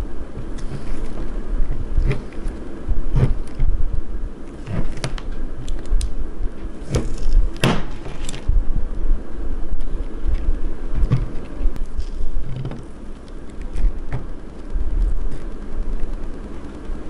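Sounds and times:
hot blade sizzling through plastic: 0:00.0 - 0:08.6.

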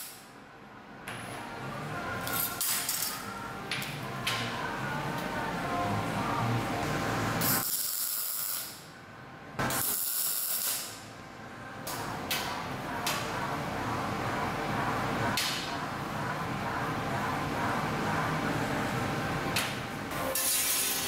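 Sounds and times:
arc welding hissing bursts: 0:07.4 - 0:08.8, 0:09.7 - 0:11.0.

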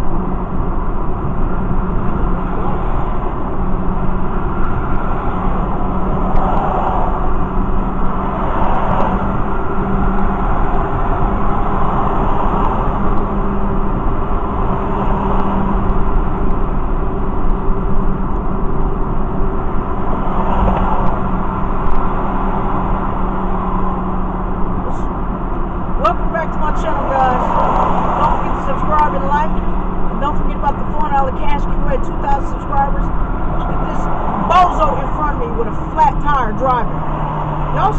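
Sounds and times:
engine drone: 0:00.0 - 0:37.9
road and tyre rumble: 0:00.0 - 0:37.9.

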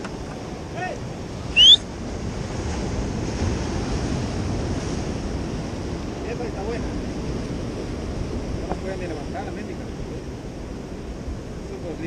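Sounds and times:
surf washing against rocks: 0:00.0 - 0:12.0
wind buffeting microphone: 0:00.0 - 0:12.0
high-pitched rising chirp: 0:01.6 - 0:01.8.

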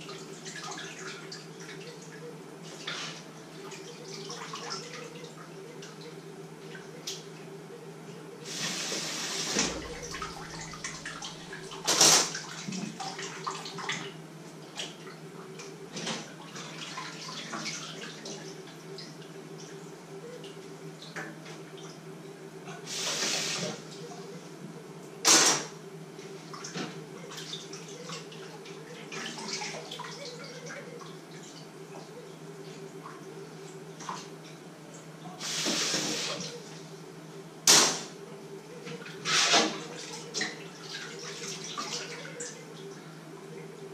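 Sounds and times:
steady low hum: 0:00.0 - 0:43.9
tap water running: 0:35.4 - 0:36.6.

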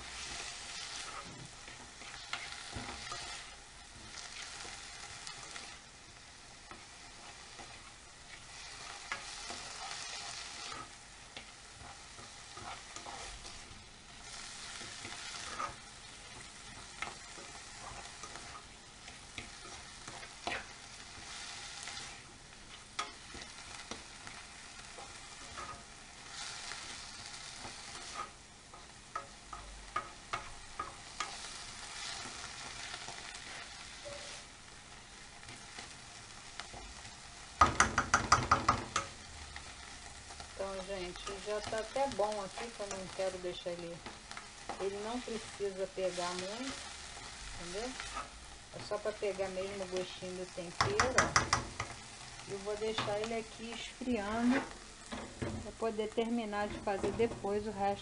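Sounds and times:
mushrooms and onion sizzling: 0:00.0 - 0:58.0
spoon clicking against pan: 0:51.0 - 0:52.0.

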